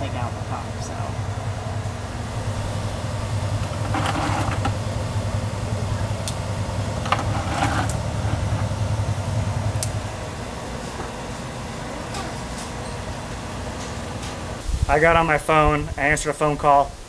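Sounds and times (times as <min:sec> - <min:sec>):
low mechanical hum: 0:00.0 - 0:17.0
handling noise: 0:01.2 - 0:14.6
sharp clicks: 0:09.8 - 0:10.0.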